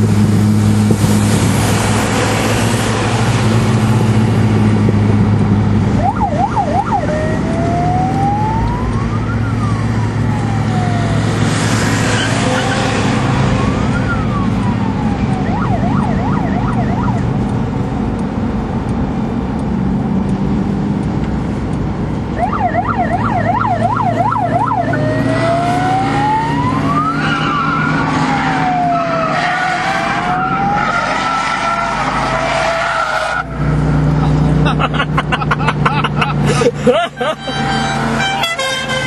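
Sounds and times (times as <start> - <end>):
electronic siren wailing: 6.0 - 17.4, 22.3 - 33.5.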